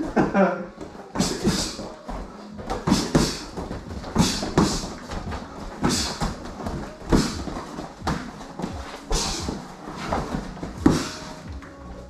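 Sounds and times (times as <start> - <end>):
punches on padded gloves: 2.6 - 11.4.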